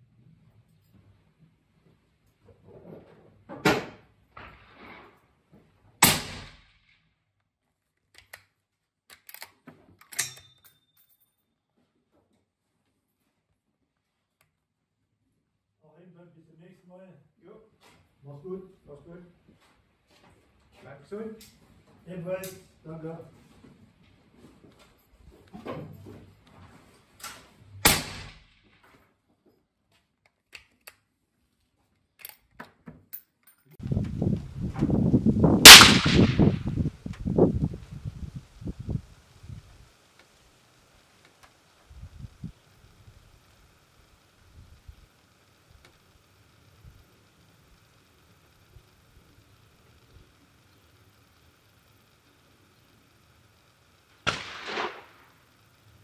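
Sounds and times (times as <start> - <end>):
rifle shot crack: 6.0 - 6.8, 27.8 - 28.6, 35.6 - 36.8, 54.2 - 55.5
faint rifle handling clicks: 7.9 - 10.9, 30.0 - 33.8
rifle bolt metallic clicks: 8.2 - 8.5, 9.1 - 10.9
low rumbling noise: 33.8 - 39.9.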